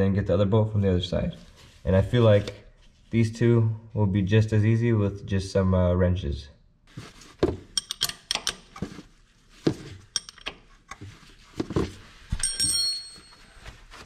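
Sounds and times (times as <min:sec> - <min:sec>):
hand tools clicking on metal: 0:07.8 - 0:08.7, 0:10.2 - 0:10.6
short metallic ring: 0:12.4 - 0:13.5.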